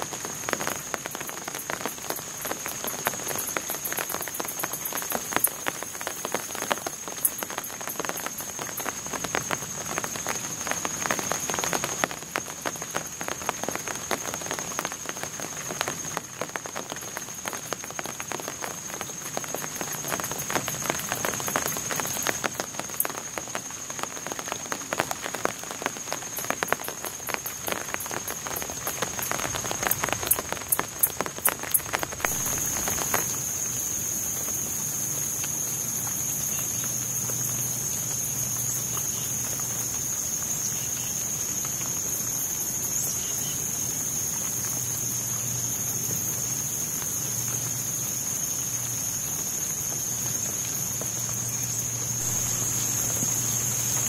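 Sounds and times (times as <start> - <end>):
water dripping: 0.0 - 40.6
raindrops pattering on water and leaves: 0.0 - 54.0
high-pitched insect drone: 32.2 - 54.0.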